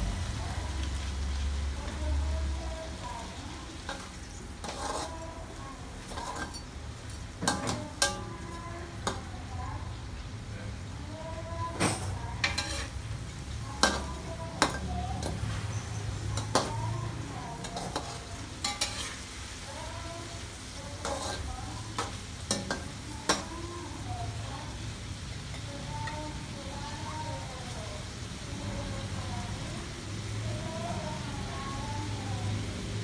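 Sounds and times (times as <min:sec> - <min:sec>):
shrimp sizzling in a wok: 0:00.0 - 0:33.0
ladle clinking against wok: 0:03.8 - 0:05.2, 0:06.0 - 0:06.8, 0:07.4 - 0:09.3, 0:11.8 - 0:13.0, 0:17.6 - 0:19.2, 0:21.0 - 0:23.5.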